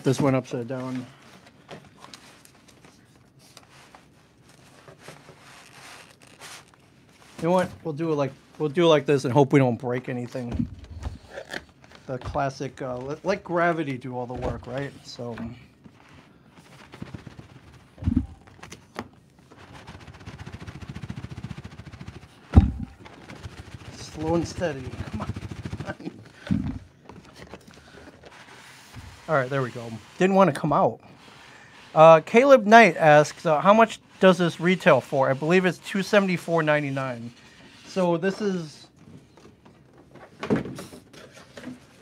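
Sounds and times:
dull thumps: 18.0 - 18.4, 22.5 - 23.2.

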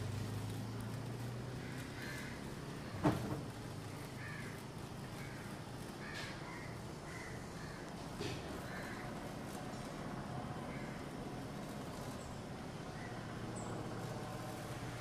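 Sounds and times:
electrical arc cracking: 0.0 - 15.0
crows cawing: 1.5 - 3.0, 3.9 - 9.4, 10.6 - 11.2, 12.9 - 13.3.

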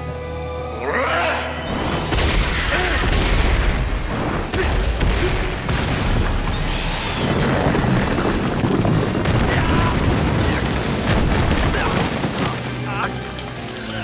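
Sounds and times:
rumble of booms and explosions: 1.7 - 12.9.

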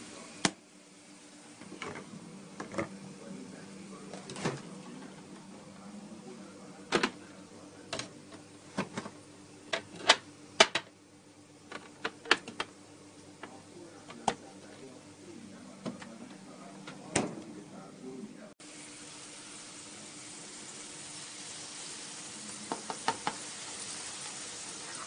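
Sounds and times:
hot oil spitting and popping: 20.4 - 25.0.

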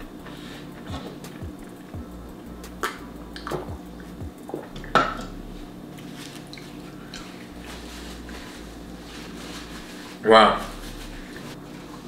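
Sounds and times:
eating clicks and wet smacks: 2.6 - 5.3.

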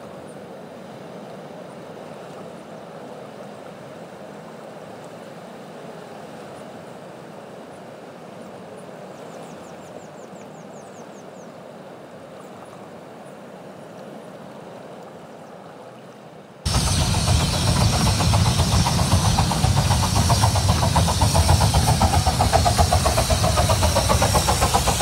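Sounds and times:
steady rushing noise: 16.7 - 25.0.

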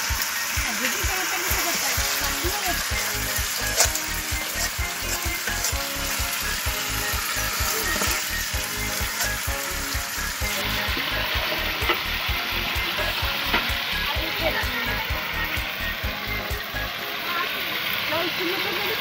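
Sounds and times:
curry sizzling in a pan: 0.0 - 19.0
metal spatula scraping a pan: 2.1 - 9.6
steady low beat: 8.0 - 16.9.

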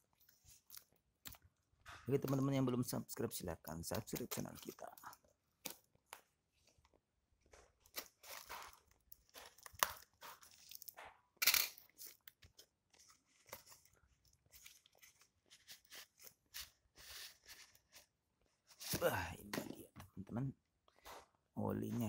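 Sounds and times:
paper wrapping crinkling: 3.9 - 11.0, 11.8 - 19.2.

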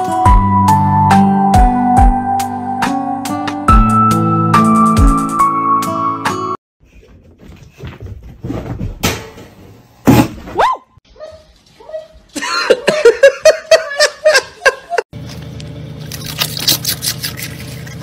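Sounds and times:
knocks and thumps: 7.1 - 10.6.

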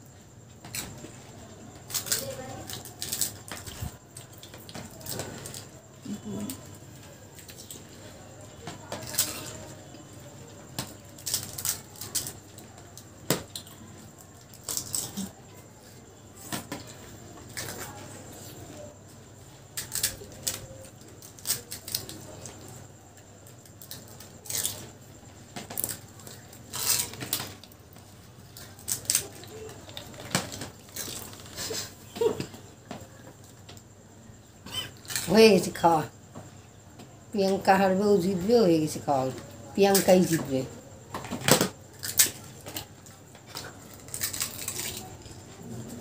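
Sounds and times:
crisp shells cracking: 10.8 - 12.5, 19.8 - 22.6, 23.7 - 24.9, 25.7 - 27.8, 28.4 - 31.7, 41.4 - 42.9, 43.5 - 45.4.

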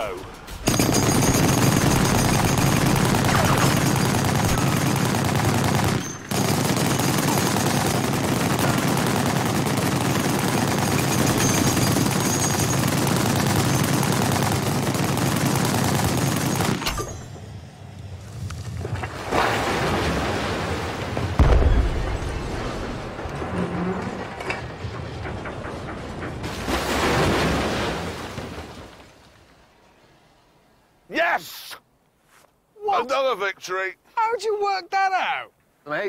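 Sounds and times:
heavy machine gun bursts: 0.6 - 16.8.

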